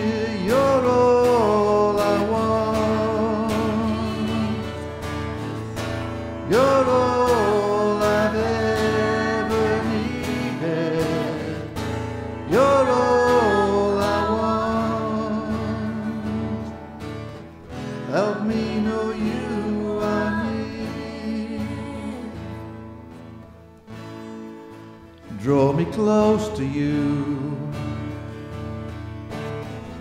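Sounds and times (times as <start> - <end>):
strummed acoustic guitar: 0.0 - 30.0
woman singing: 2.0 - 4.8, 6.5 - 11.6, 12.5 - 16.7, 18.1 - 22.7.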